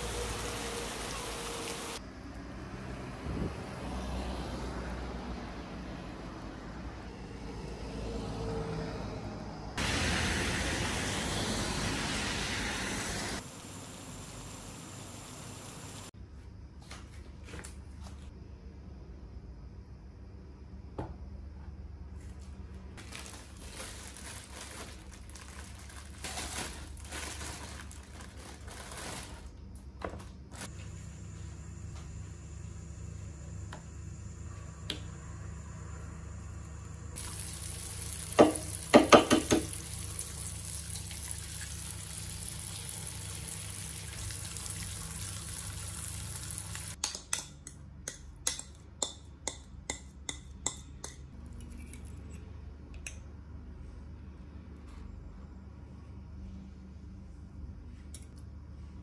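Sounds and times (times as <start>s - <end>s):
sausage sizzling in oil: 0.0s - 2.0s, 9.8s - 16.1s, 37.2s - 47.0s.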